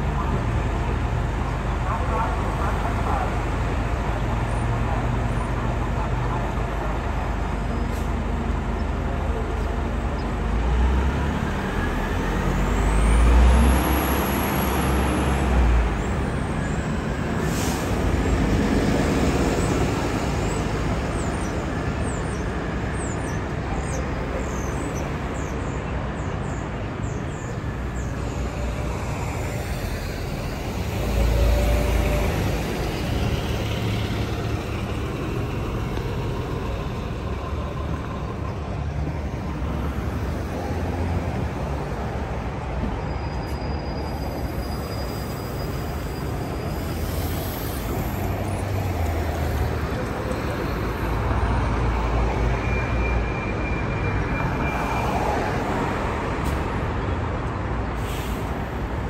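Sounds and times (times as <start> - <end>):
bus engines droning: 0.0 - 59.0
air brake hiss: 17.4 - 18.0, 58.0 - 59.0.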